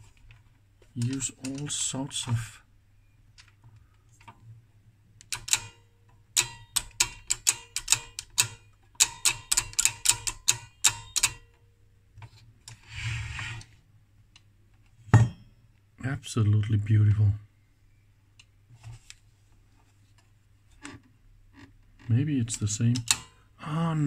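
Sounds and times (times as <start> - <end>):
rotary switch clicking: 5.2 - 5.8, 6.4 - 11.4, 22.9 - 23.3.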